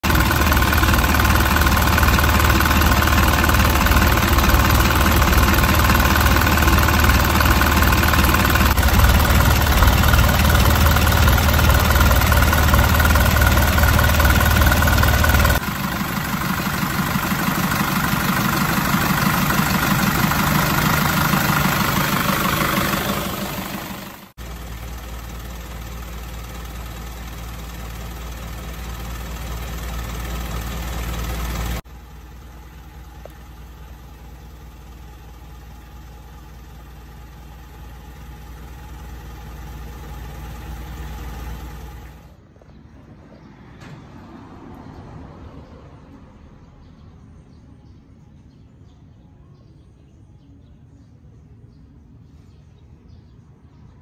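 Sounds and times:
diesel engine idling: 0.0 - 42.6.

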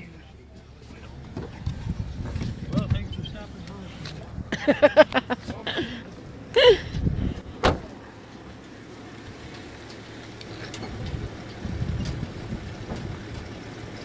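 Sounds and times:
low outdoor background: 0.0 - 14.0
car door shutting: 7.4 - 8.0.

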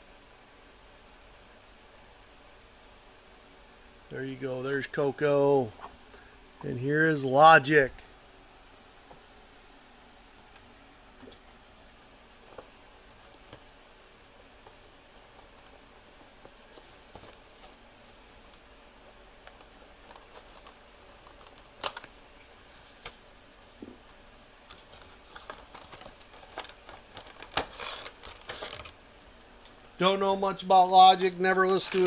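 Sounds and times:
handling clicks and rustles: 31.0 - 32.0.

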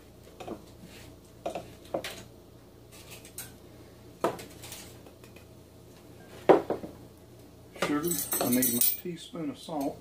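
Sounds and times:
measuring cups and glassware clinking: 7.8 - 9.1.

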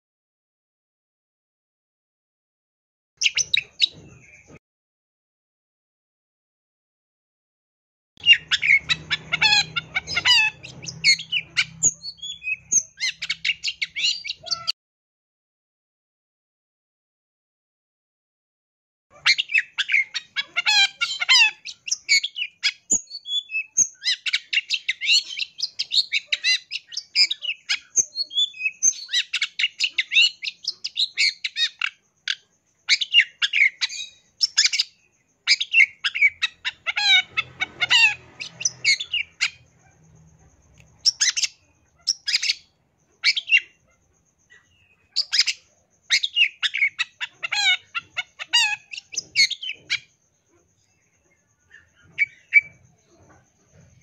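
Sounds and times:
bird chattering song: 3.2 - 4.6, 8.2 - 14.8, 19.1 - 54.0.

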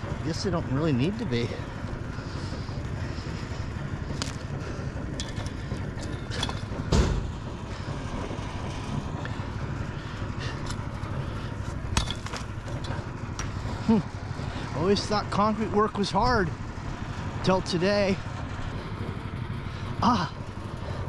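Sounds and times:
concrete chunks clattering: 11.9 - 13.0.

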